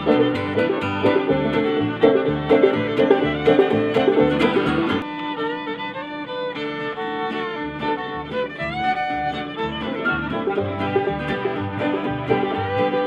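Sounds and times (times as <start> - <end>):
upright bass: 0.0 - 5.0, 8.2 - 13.0
acoustic bluegrass band playing: 0.0 - 13.0
fiddle bowed notes: 0.0 - 13.0.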